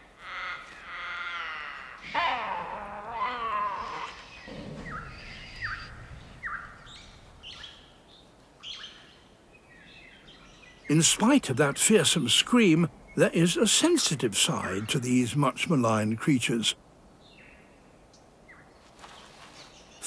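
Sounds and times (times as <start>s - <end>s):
animals screaming: 0.0s - 7.8s
short high animal calls: 0.2s - 6.8s.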